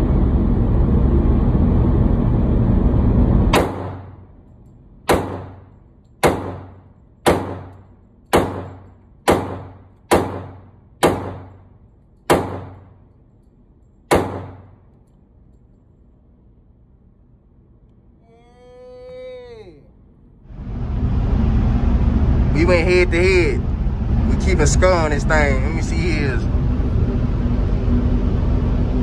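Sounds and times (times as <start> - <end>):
loud steady noise: 0.0 - 4.4, 5.1 - 13.1, 14.1 - 14.9, 20.5 - 29.0
pistol shots echoing: 3.6 - 4.1, 5.1 - 5.6, 6.2 - 11.6, 12.3 - 12.9, 14.1 - 14.8.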